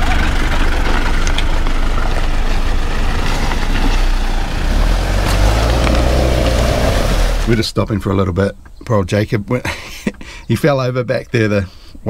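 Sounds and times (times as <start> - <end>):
rising whine: 0.0 - 7.6
car engine rumbling: 0.0 - 10.2.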